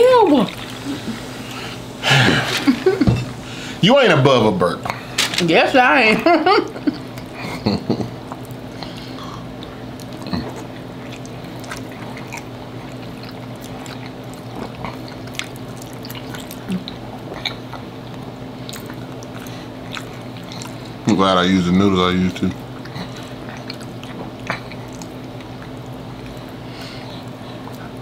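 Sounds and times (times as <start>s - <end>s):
background hum: 0.0s - 28.0s
quiet chewing: 8.1s - 21.0s, 22.4s - 28.0s.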